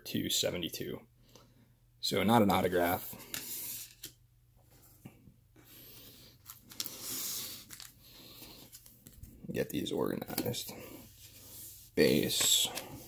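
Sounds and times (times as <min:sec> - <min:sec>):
cards sliding and rubbing: 0:03.2 - 0:04.2, 0:06.1 - 0:09.3, 0:10.3 - 0:13.0.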